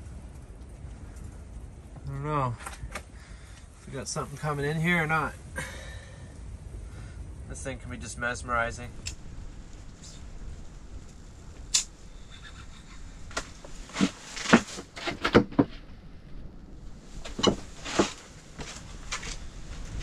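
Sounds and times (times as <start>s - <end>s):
faint steady background noise: 0.0s - 20.0s
sharp clicks and knocks: 13.3s - 15.9s.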